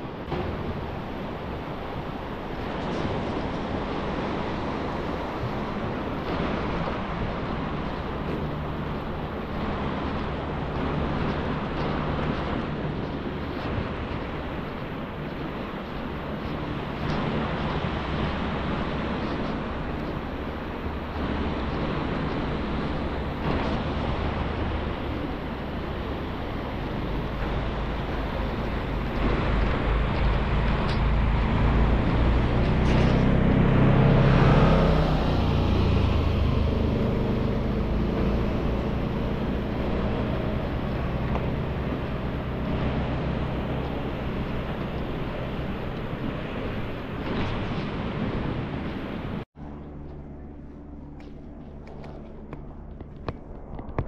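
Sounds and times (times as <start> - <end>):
white-water river rushing: 0.0 - 49.4.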